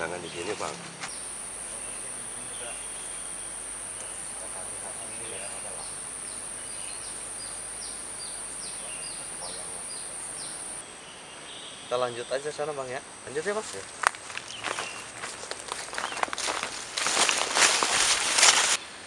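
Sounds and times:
cicadas droning: 0.0 - 19.0.

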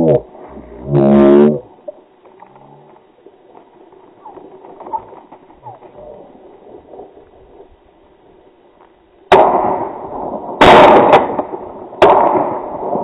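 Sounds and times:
shotgun shots: 9.3 - 10.0, 10.6 - 13.0.

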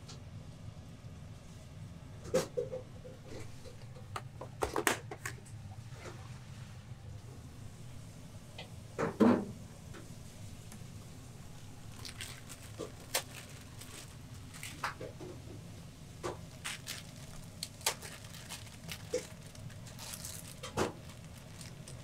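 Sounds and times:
low steady hum: 0.0 - 22.0
packets crinkling: 11.5 - 22.0.

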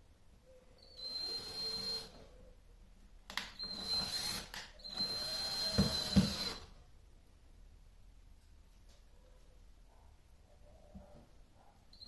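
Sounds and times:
cordless drill driving screws: 1.0 - 2.2, 3.6 - 6.7.

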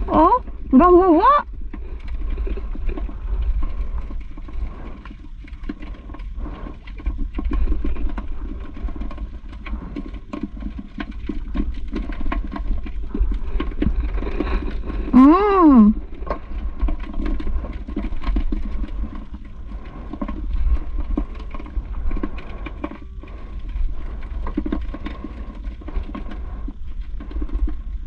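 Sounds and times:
low rumble: 0.0 - 28.0
short vocal sound: 15.2 - 16.0.

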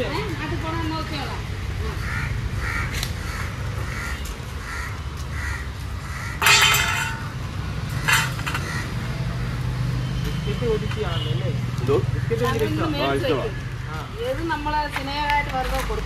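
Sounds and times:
crow cawing: 2.0 - 7.2, 8.0 - 9.1
metal bowl clattering on ground: 6.4 - 7.4, 8.0 - 8.7.

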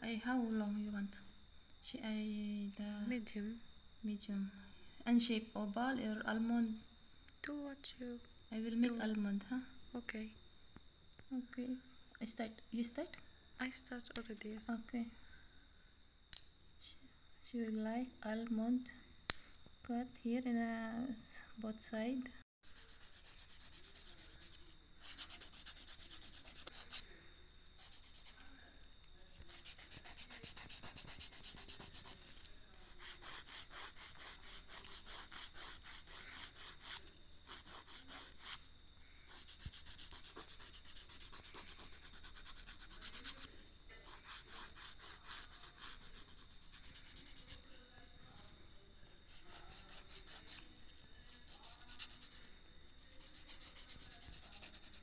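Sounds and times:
nail file rasping on plastic: 29.5 - 38.6, 39.3 - 47.6, 51.4 - 52.4, 53.1 - 55.0.

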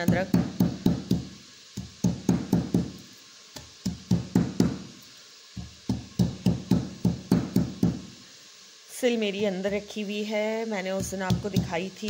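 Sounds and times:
stone pounding garlic: 0.0 - 4.9, 5.6 - 8.1, 10.9 - 12.0.

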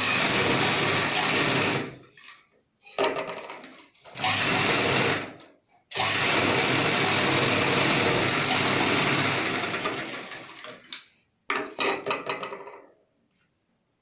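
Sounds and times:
sewing machine stitching: 0.0 - 2.1, 4.0 - 10.9.

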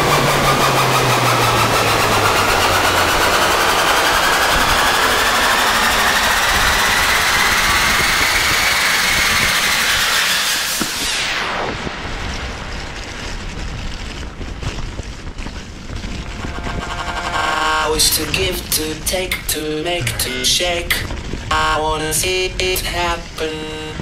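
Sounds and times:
bike tyre noise: 1.3 - 19.6
wind rush over camera: 10.7 - 17.2, 20.2 - 23.4.

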